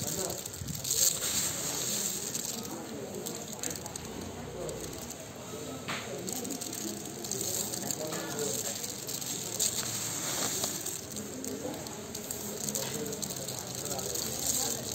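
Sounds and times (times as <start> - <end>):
cardamom pods rustling and rattling: 0.0 - 14.9.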